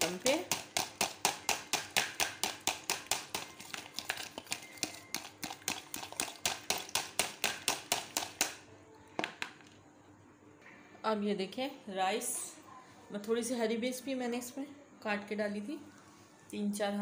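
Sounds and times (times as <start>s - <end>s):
fork beating sauce in a bowl: 0.0s - 8.6s.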